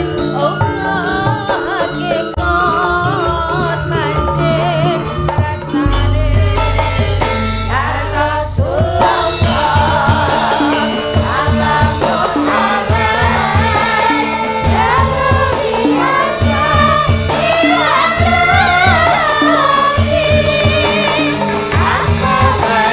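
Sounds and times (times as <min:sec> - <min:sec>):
women singing together: 0:00.0 - 0:22.9
kettle gongs: 0:05.8 - 0:11.7
low beat: 0:05.8 - 0:11.8.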